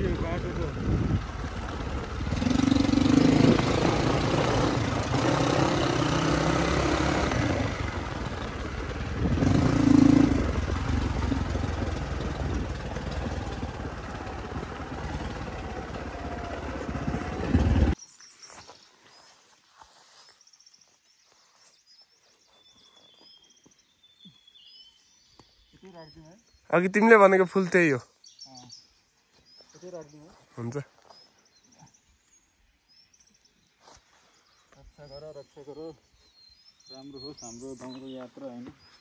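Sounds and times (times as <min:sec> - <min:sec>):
motorcycle engine running: 0:00.0 - 0:18.0
faint bird chirps: 0:18.0 - 0:39.0.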